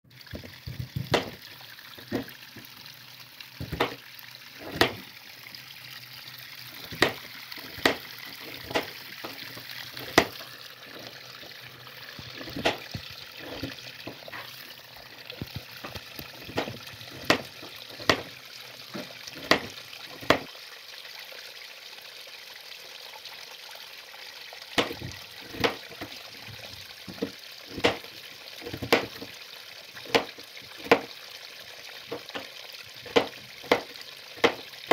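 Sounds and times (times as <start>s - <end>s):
knife chopping on cutting board: 0.4s - 1.4s, 3.6s - 4.0s, 4.6s - 5.0s, 6.8s - 9.4s, 10.0s - 10.4s, 12.4s - 14.2s, 15.4s - 18.3s, 19.4s - 20.5s, 24.8s - 25.8s, 27.1s - 28.0s, 28.7s - 29.3s, 30.0s - 31.1s, 33.1s - 34.6s.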